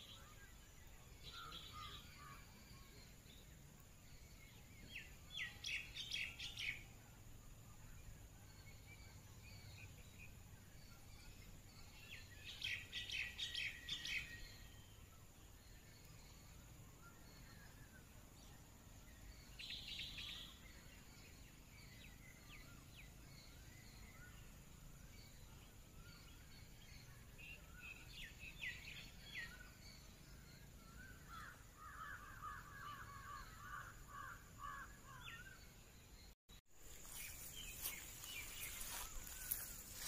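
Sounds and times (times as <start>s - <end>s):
birds calling: 26.0s - 40.0s.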